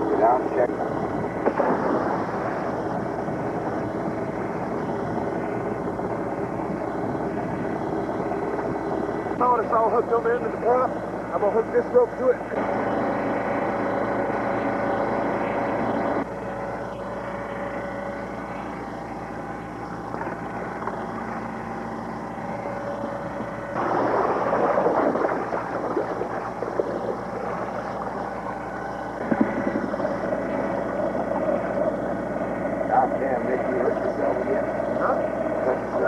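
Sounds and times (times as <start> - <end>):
ship machinery drone: 0.0 - 36.0
rush of noise: 23.8 - 28.4.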